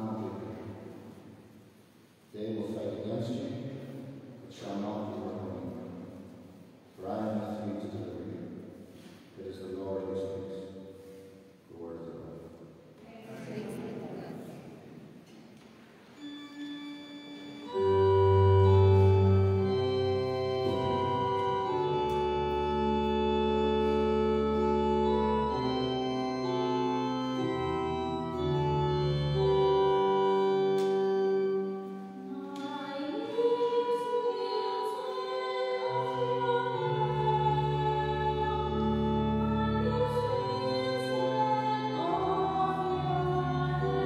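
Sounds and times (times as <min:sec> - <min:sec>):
church organ chords: 0:00.0 - 0:01.4, 0:02.3 - 0:11.2, 0:16.2 - 0:44.0
person singing: 0:32.2 - 0:44.0.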